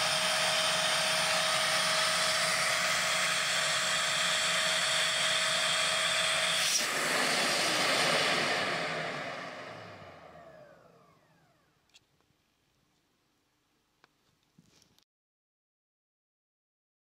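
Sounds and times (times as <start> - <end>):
air rushing through hose: 0.0 - 10.0
vacuum cleaner whining: 0.0 - 11.8.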